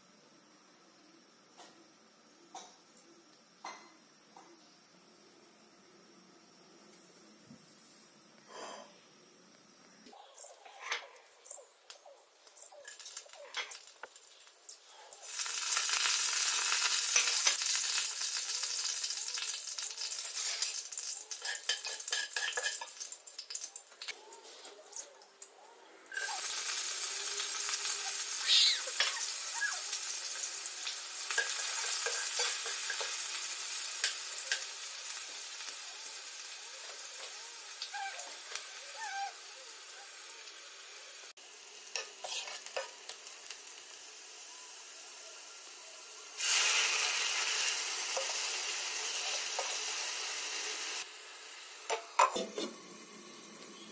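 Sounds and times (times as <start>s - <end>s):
oil sizzling in frying pan: 12.4s - 24.2s, 26.1s - 53.9s.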